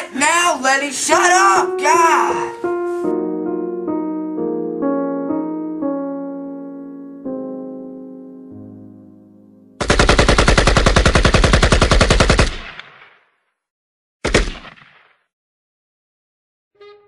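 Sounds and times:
piano music: 0.0s - 9.8s
rapid machine-gun fire: 9.8s - 13.0s
loud gunshot: 14.2s - 15.2s.

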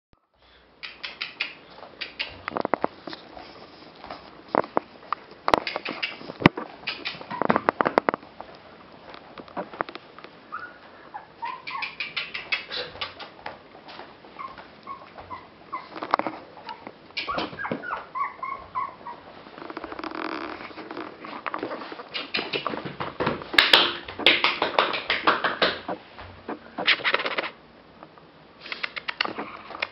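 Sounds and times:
claws clicking on wooden floor: 4.0s - 10.0s, 19.6s - 25.9s
puppy whimpers and yips: 10.5s - 12.9s, 14.4s - 16.0s, 16.6s - 19.3s.

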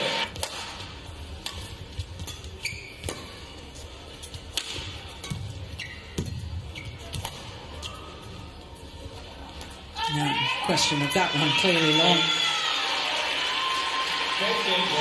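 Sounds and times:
arena background noise: 0.0s - 15.0s
rackets hitting shuttlecock: 0.3s - 3.6s, 4.2s - 8.2s
shoes squeaking on court: 2.0s - 8.9s.

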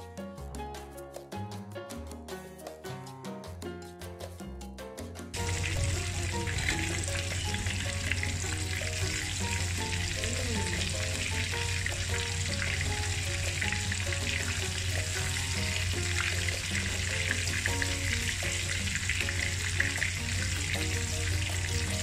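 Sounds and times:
chicken frying in oil: 5.3s - 22.0s.

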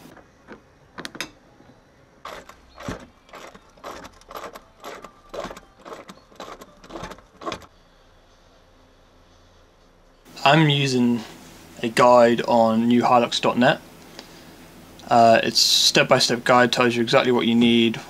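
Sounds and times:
spanner clicking and scraping on bolt: 2.3s - 7.7s.

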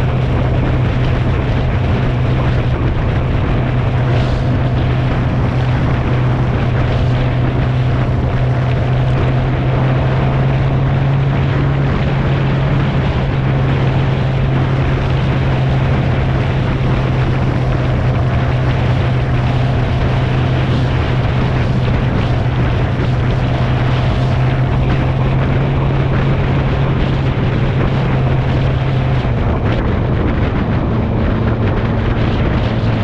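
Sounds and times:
motorcycle engine drone: 0.0s - 33.0s
wind on microphone: 0.0s - 33.0s.

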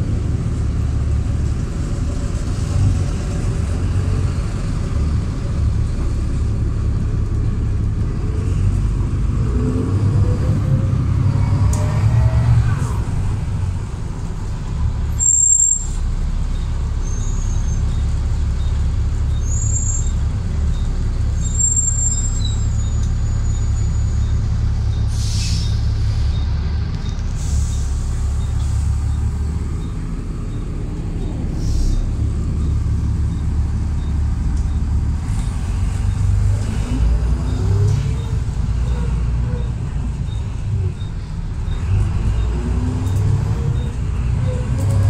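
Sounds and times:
bus engine rumbling: 0.0s - 45.0s
air brake hiss: 25.1s - 26.3s, 31.6s - 32.1s.

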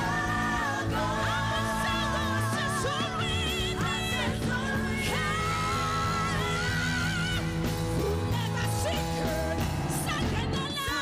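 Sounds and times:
bass: 0.0s - 11.0s
electric keyboard: 0.0s - 11.0s.

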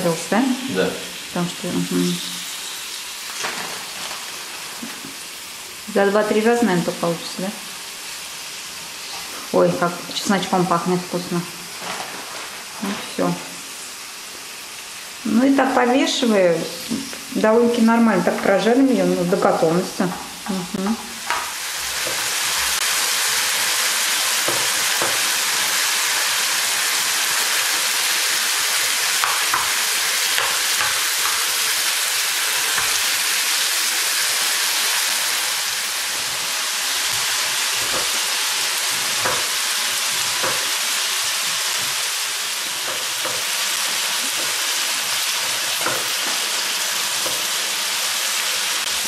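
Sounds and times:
chicken sizzling in frying pan: 0.0s - 49.0s
spatula stirring and tapping pan: 24.4s - 25.4s, 29.2s - 31.6s, 38.9s - 42.0s.

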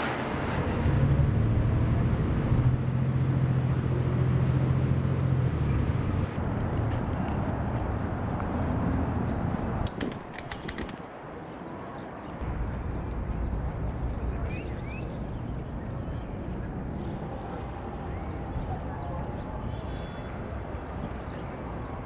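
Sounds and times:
sharp clicks: 9.9s - 11.0s.

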